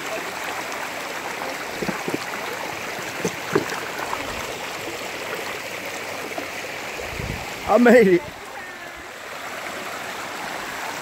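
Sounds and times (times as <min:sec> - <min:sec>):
creek running over rocks: 0:00.0 - 0:11.0.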